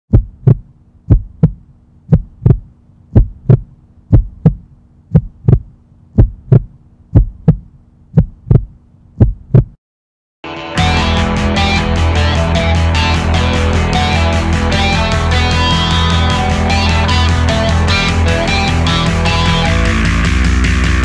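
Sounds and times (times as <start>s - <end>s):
heartbeat thumps: 0.1s - 9.8s
steady low hum: 0.1s - 9.8s.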